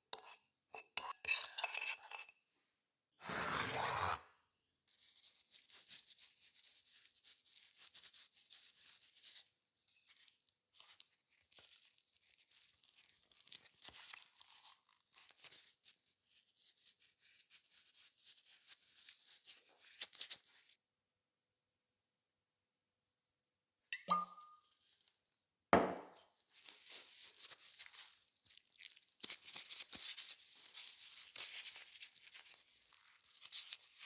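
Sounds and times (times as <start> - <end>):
plastic gloves crinkling: 4.9 - 20.8, 26.2 - 34.0.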